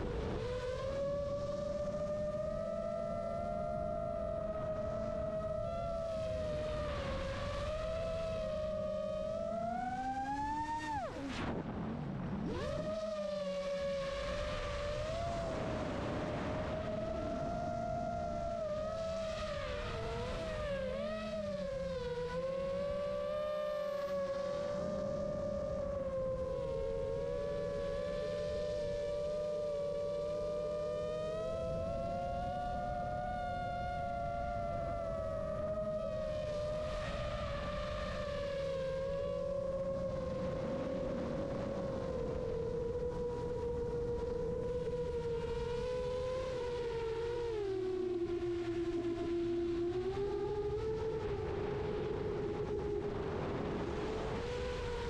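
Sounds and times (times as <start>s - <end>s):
drone motors whining: 0.0s - 11.5s
wind rumble on microphone: 0.0s - 55.0s.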